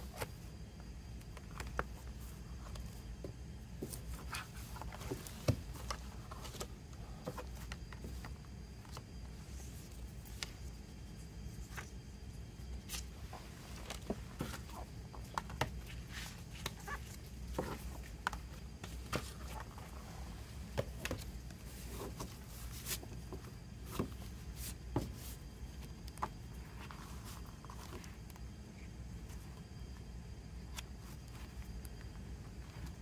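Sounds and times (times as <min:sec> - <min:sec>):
hands handling disc case and booklet: 0:12.8 - 0:20.0.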